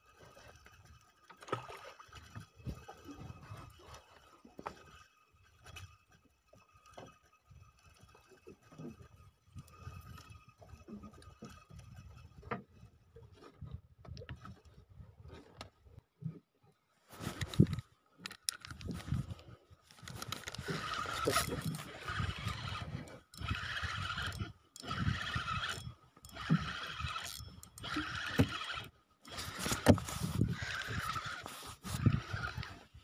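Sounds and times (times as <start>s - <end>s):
clothing rubbing against phone: 17.1s - 17.8s, 29.3s - 32.8s.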